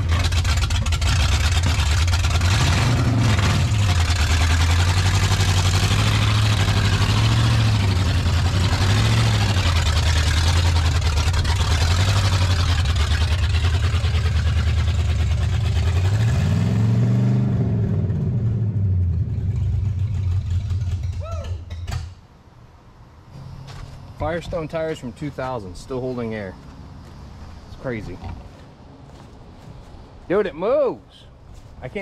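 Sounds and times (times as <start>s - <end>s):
van engine revving: 0.0s - 21.2s.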